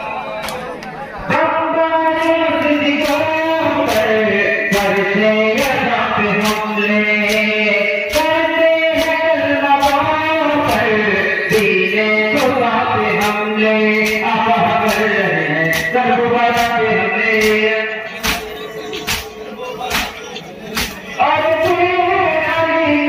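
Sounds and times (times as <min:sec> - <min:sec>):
men chanting in unison: 0:00.0 - 0:23.0
hands slapping chests: 0:18.2 - 0:21.0.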